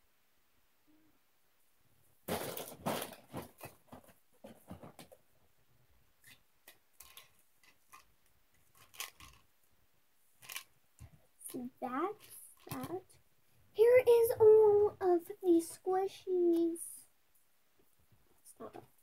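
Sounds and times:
packaging rustling and crinkling: 2.3 - 5.2.

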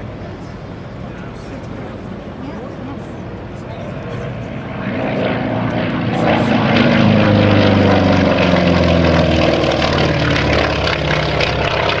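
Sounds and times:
propeller plane flying past: 0.0 - 12.0.

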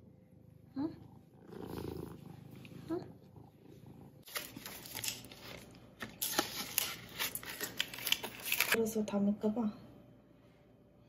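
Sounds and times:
cat purring: 0.0 - 4.3.

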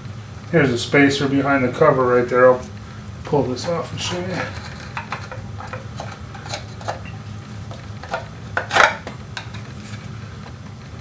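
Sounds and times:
metal cover clicks and scrapes: 4.1 - 10.0.

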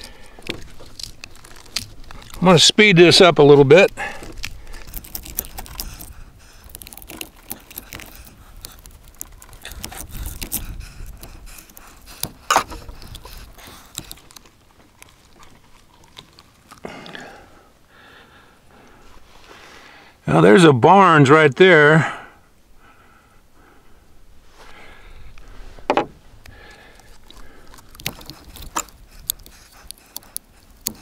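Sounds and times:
knife cutting through gel: 4.1 - 14.4, 27.2 - 31.0.

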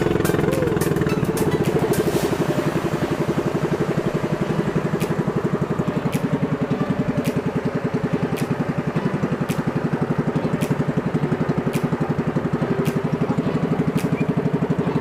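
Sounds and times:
boat engine puttering: 0.0 - 15.0
sharp tick: 8.3 - 8.7, 9.4 - 9.8, 10.6 - 12.1, 12.8 - 13.2, 13.9 - 14.4.

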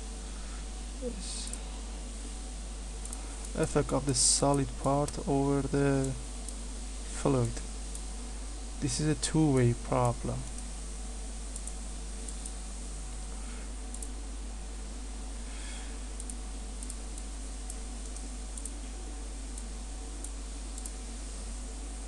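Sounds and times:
low electrical hum: 0.0 - 22.0
computer mouse clicks: 11.5 - 12.6, 13.9 - 14.2, 16.2 - 18.8, 19.5 - 21.0.

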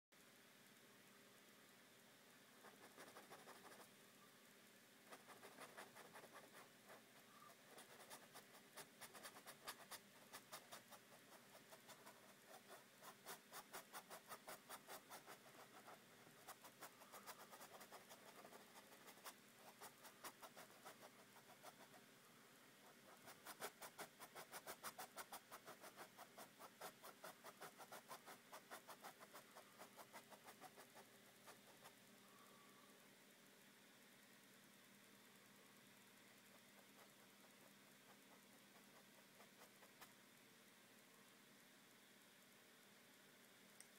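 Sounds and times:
paintbrush scratching on surface: 2.6 - 3.9, 5.1 - 22.1, 22.8 - 32.0, 36.4 - 40.2.

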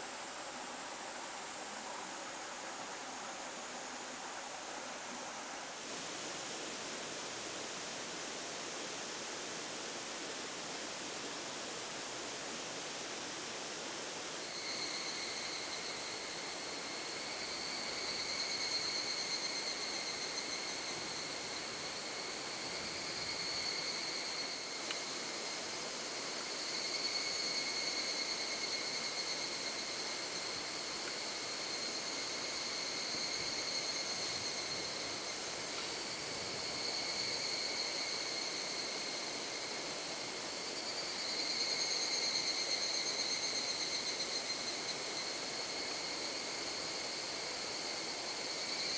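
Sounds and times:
insects chorus: 0.0 - 48.9.

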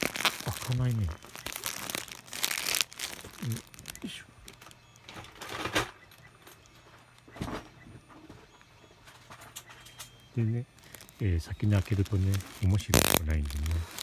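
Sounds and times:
plastic mailer bag crinkling: 0.0 - 7.0, 10.4 - 14.0.

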